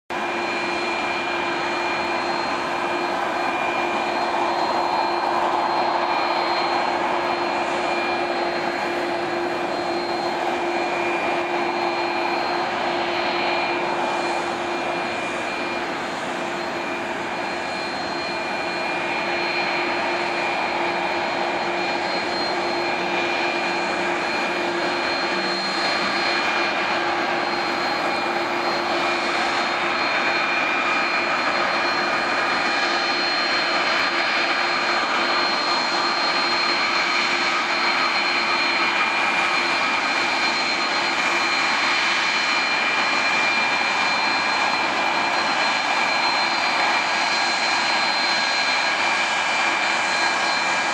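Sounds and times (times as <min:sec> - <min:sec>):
jet engines whining: 0:00.1 - 0:50.9.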